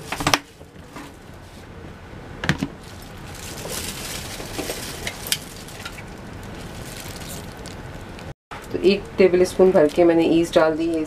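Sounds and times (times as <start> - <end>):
soft rustle: 2.8 - 8.3.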